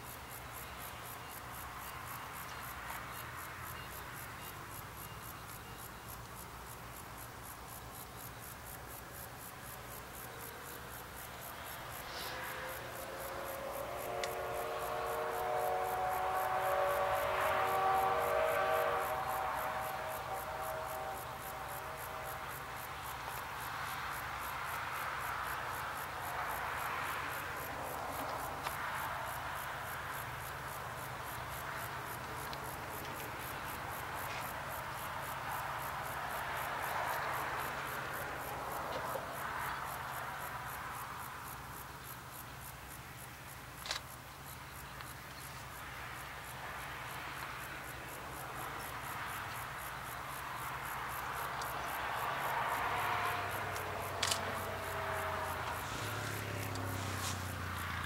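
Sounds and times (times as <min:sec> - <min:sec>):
insects chirping: 0:00.0 - 0:58.0
rushing noise: 0:11.4 - 0:39.7.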